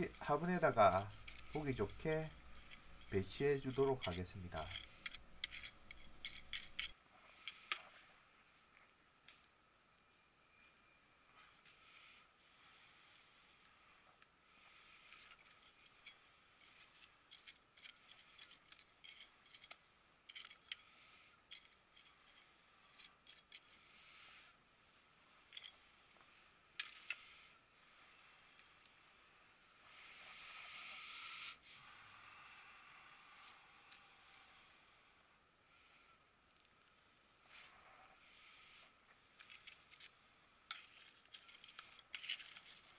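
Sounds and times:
metal trowel scraping gritty soil: 0.0s - 6.9s.

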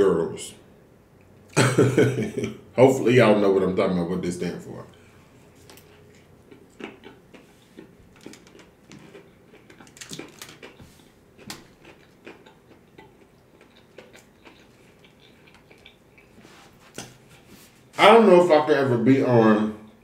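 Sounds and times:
man chewing crunchy food: 5.4s - 17.5s.

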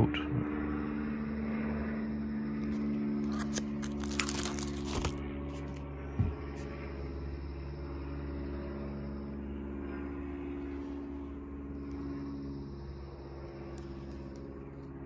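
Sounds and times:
steady low hum: 0.0s - 15.0s
plastic sleeves crinkling: 3.2s - 5.2s.

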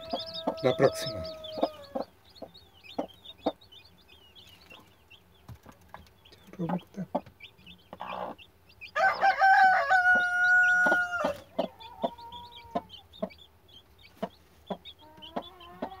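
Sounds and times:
rooster crowing: 0.0s - 2.0s, 9.0s - 11.4s
chicks peeping: 0.0s - 16.0s
hen clucking: 0.0s - 16.0s.

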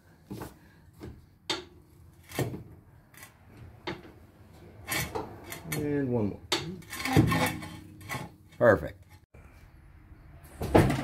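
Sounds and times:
car jack metal clanks: 3.6s - 8.5s.

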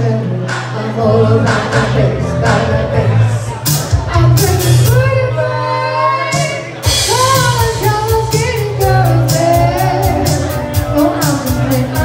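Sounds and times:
keyboard: 0.0s - 12.0s
woman singing: 0.0s - 12.0s
drum kit with cymbal strokes: 3.5s - 5.2s, 6.3s - 12.0s.

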